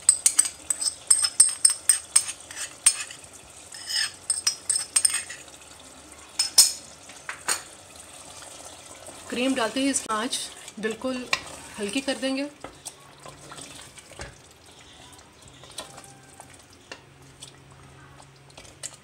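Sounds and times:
pot sizzling: 0:00.0 - 0:19.0
utensil scraping a bowl: 0:00.1 - 0:05.5.

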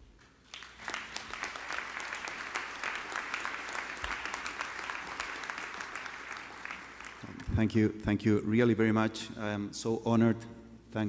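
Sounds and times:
audience applauding: 0:00.5 - 0:07.6.

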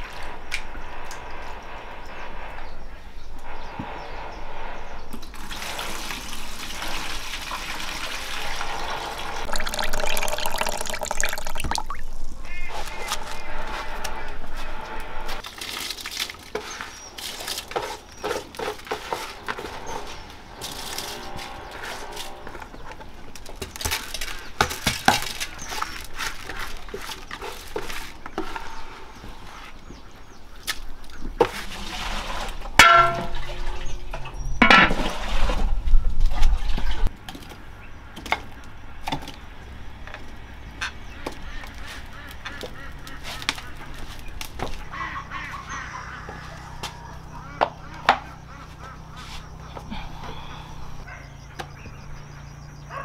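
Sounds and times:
goose honking: 0:44.9 - 0:46.7.

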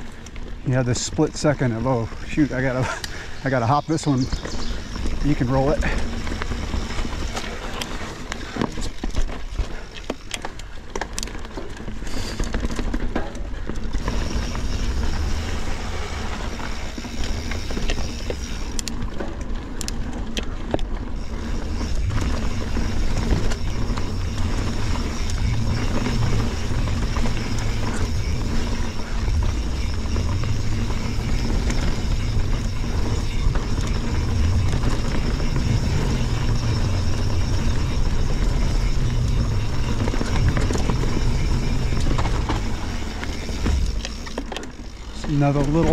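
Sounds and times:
bike knocking and rattling: 0:00.0 - 0:45.9
bike tyre and drivetrain noise: 0:00.0 - 0:45.9
wind rumbling on microphone: 0:13.9 - 0:45.3.

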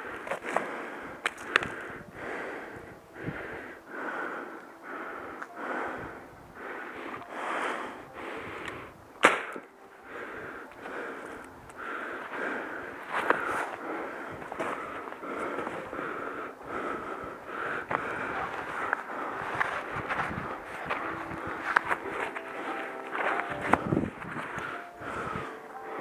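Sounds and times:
sharp snap: 0:09.2 - 0:09.7
footsteps in snow: 0:10.7 - 0:25.6.

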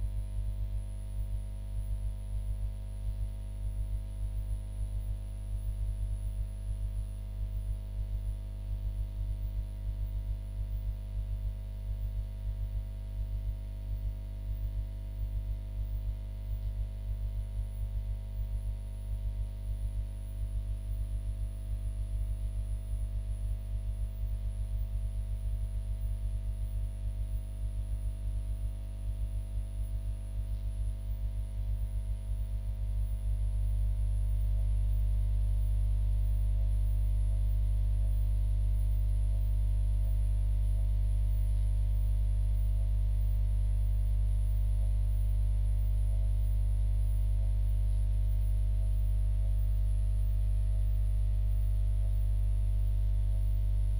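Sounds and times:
low electrical hum: 0:00.0 - 0:53.9.

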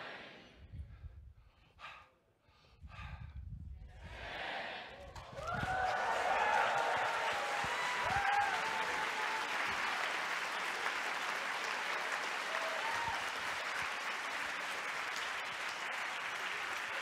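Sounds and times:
audience applauding: 0:05.0 - 0:17.0.

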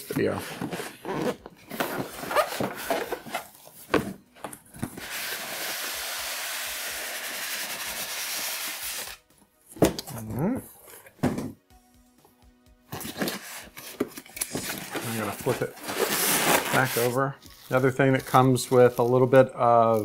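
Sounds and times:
carton sliding off styrofoam: 0:15.0 - 0:17.1.

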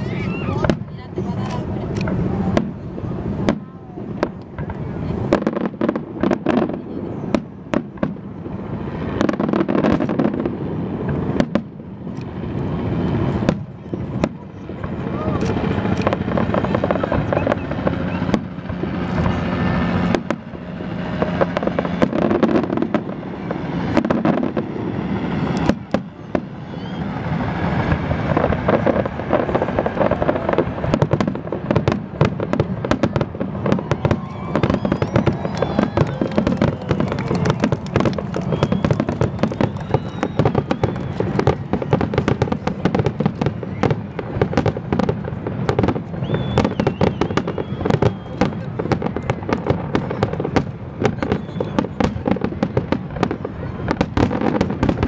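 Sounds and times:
fireworks bangs and crackles: 0:00.0 - 0:55.0.

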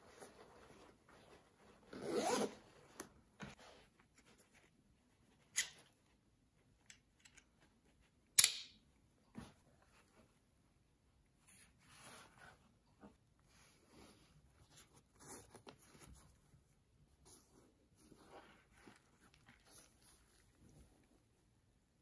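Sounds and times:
zipper pulled: 0:01.8 - 0:03.1.

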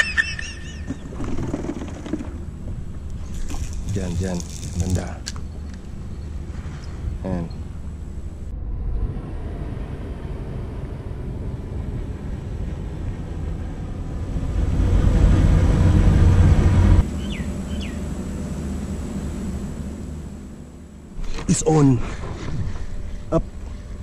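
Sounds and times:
traffic rumble on bridge: 0:00.0 - 0:24.0
vehicle passing: 0:05.8 - 0:24.0.

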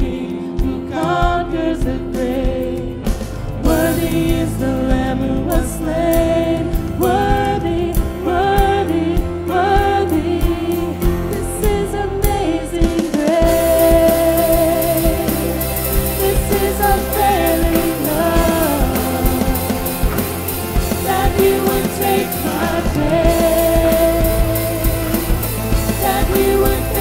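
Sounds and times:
person singing: 0:00.0 - 0:27.0
steady drum beat: 0:00.0 - 0:27.0
worship band music: 0:00.0 - 0:27.0
cymbals: 0:13.4 - 0:27.0.

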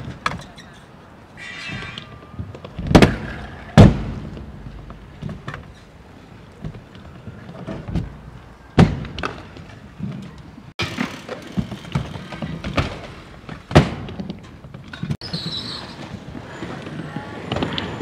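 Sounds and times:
scooter thuds and clatters on ramp: 0:10.8 - 0:15.2.

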